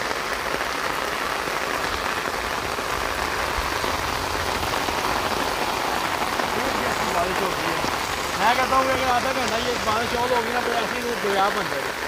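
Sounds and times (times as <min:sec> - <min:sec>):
heavy rain on standing water: 0:00.0 - 0:12.0.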